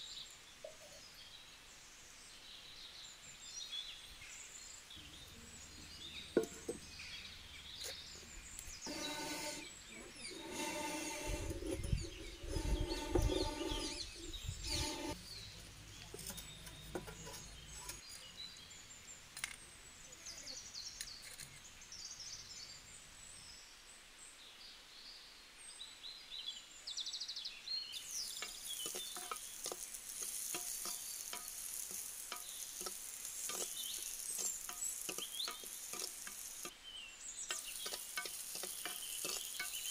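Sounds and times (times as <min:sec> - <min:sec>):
stems sizzling in hot oil: 0:04.6 - 0:15.2, 0:27.9 - 0:36.8, 0:37.4 - 0:39.9
clay pot set on stove: 0:08.8 - 0:15.2, 0:28.1 - 0:36.7, 0:37.5 - 0:39.9
spoon scraping clay pot: 0:08.8 - 0:15.2, 0:28.1 - 0:36.7, 0:37.5 - 0:39.9.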